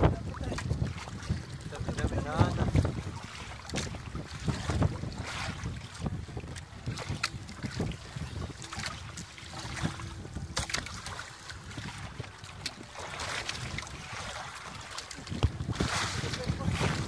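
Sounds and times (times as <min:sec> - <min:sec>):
water splashing and dripping: 0:00.0 - 0:17.0
net knocking against hull: 0:08.6 - 0:17.0.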